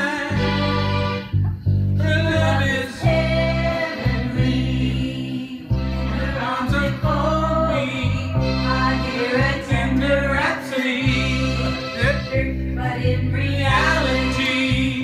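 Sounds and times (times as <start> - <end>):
man singing: 0.0 - 0.8, 2.0 - 15.0
recorded backing track with bass: 0.0 - 15.0
woman singing: 2.0 - 11.4, 12.4 - 15.0.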